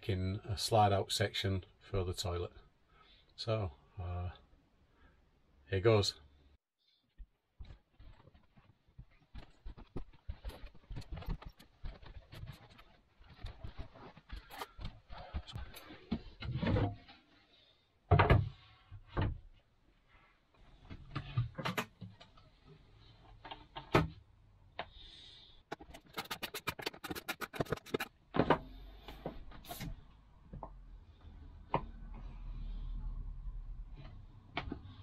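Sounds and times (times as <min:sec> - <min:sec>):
quick run of clicks: 0:25.7 - 0:28.1.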